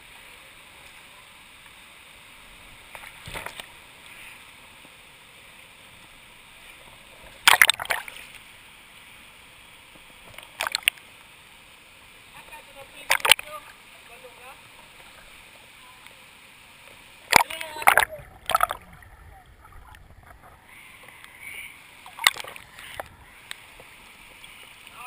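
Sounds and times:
flowing water rushing: 0:00.0 - 0:25.0
water splashing: 0:06.5 - 0:08.6, 0:10.0 - 0:11.1, 0:12.3 - 0:25.0.

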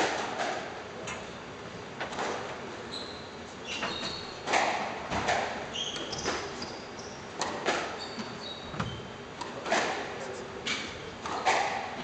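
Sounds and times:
racket hitting squash ball: 0:00.0 - 0:00.8, 0:03.8 - 0:06.6, 0:07.4 - 0:12.0
shoes squeaking on wooden floor: 0:02.8 - 0:04.5, 0:05.1 - 0:07.2, 0:07.8 - 0:09.2.

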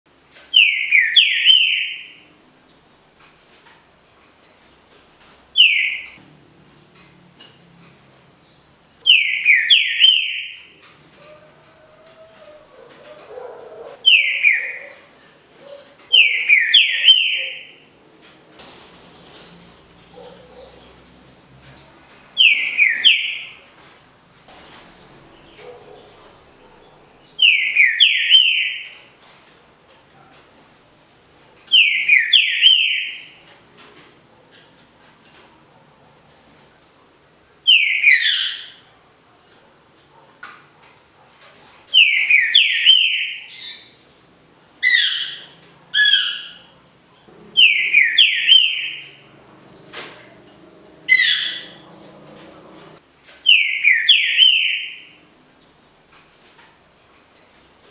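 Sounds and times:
bird whistling song: 0:00.6 - 0:02.2, 0:05.6 - 0:06.2, 0:09.0 - 0:10.6, 0:14.0 - 0:17.7, 0:22.4 - 0:23.6, 0:26.6 - 0:29.0, 0:31.7 - 0:33.4, 0:37.7 - 0:38.7, 0:42.0 - 0:44.0, 0:47.6 - 0:49.2, 0:53.5 - 0:55.2.

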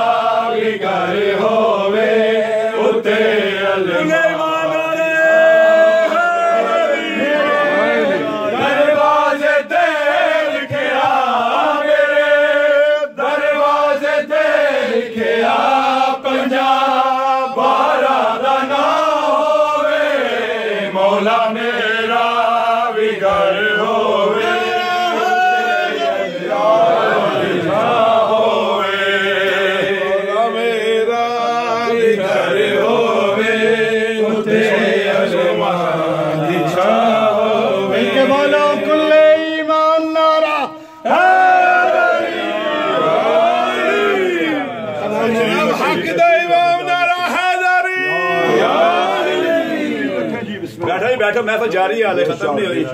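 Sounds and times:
man chanting: 0:29.8 - 0:41.2, 0:44.9 - 0:48.4.

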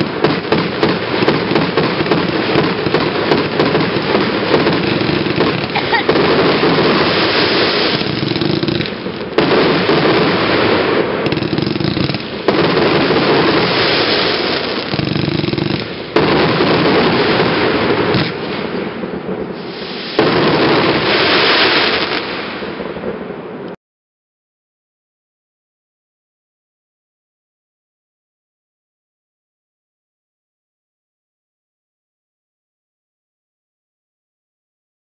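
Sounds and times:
fireworks crackling: 0:00.0 - 0:23.7.

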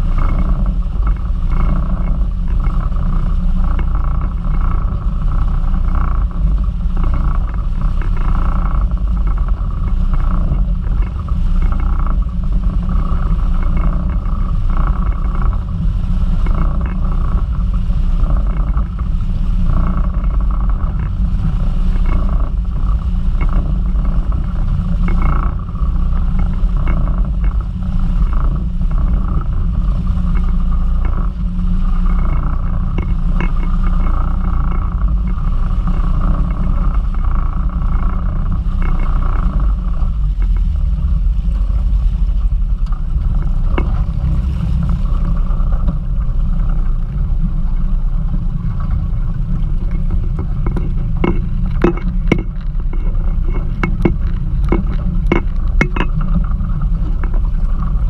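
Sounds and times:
hull and water rumble: 0:00.0 - 0:58.0
outboard motor running: 0:00.0 - 0:58.0
sharp knocks: 0:50.1 - 0:56.2.

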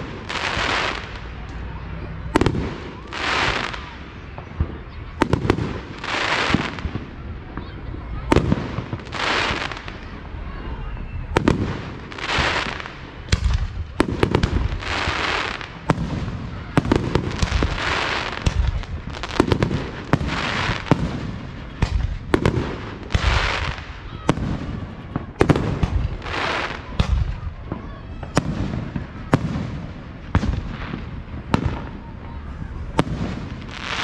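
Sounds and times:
firework hiss: 0:08.3 - 0:10.2, 0:11.4 - 0:27.6
firework shells booming: 0:11.3 - 0:32.0, 0:32.8 - 0:34.0.

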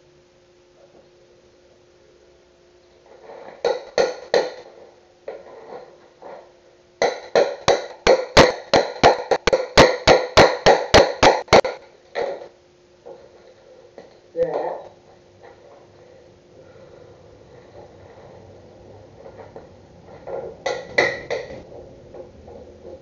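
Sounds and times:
hammer striking chisel into wood: 0:07.0 - 0:11.8.

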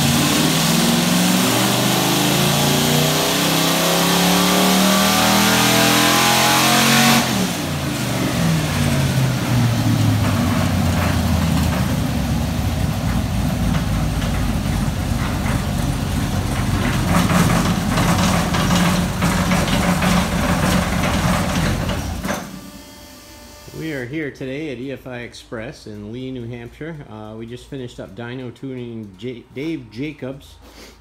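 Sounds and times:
engine running on a dyno: 0:00.0 - 0:23.8.

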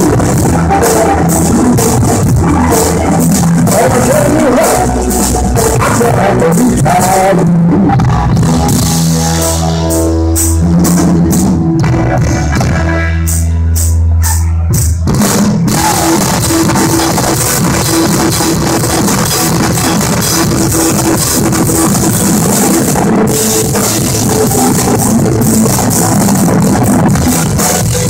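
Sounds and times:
blues-rock band playing: 0:00.0 - 0:28.0
drum and cymbal hits: 0:14.8 - 0:28.0.

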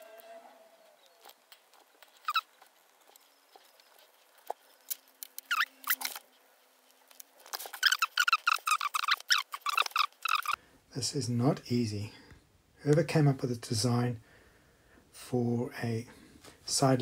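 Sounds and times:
short high-pitched squeaks: 0:02.1 - 0:02.6, 0:05.4 - 0:06.3, 0:07.6 - 0:10.6.

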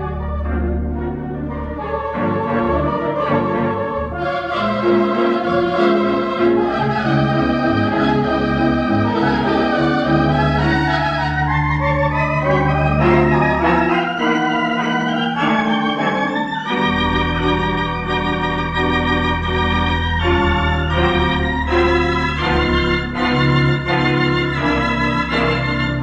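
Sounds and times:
organ chords: 0:00.0 - 0:26.0
deep organ bass note: 0:16.7 - 0:26.0.

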